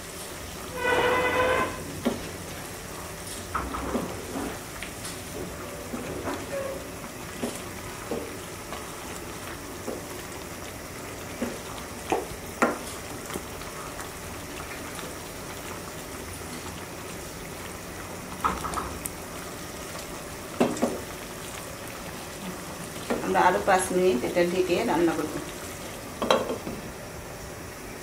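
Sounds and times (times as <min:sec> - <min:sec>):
curry bubbling and sizzling: 0:00.0 - 0:28.0
wooden spatula scraping pan: 0:00.7 - 0:02.2.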